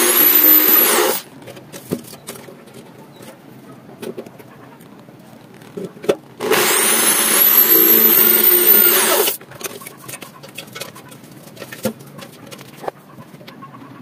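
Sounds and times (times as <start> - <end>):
power tool motor whine: 0.0 - 1.2, 6.4 - 9.4.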